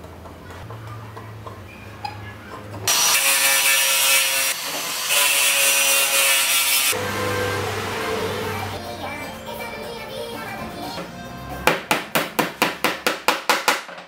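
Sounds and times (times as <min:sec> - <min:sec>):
angle grinder sanding chipboard: 0:02.9 - 0:08.8.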